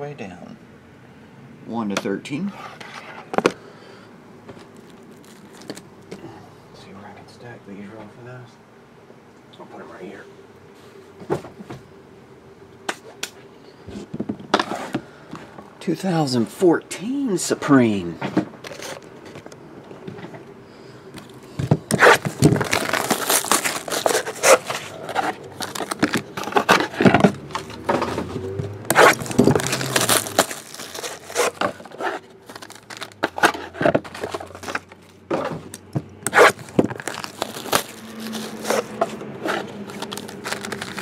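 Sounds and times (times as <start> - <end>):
wrapping tearing and crinkling: 4.6 - 5.9, 21.9 - 27.8, 28.9 - 35.2, 36.3 - 41.0
cardboard scraping: 18.6 - 19.4, 21.9 - 41.0.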